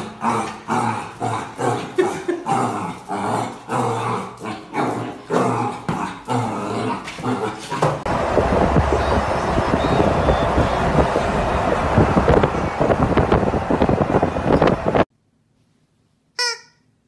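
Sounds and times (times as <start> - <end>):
wind noise: 8.1 - 15.1.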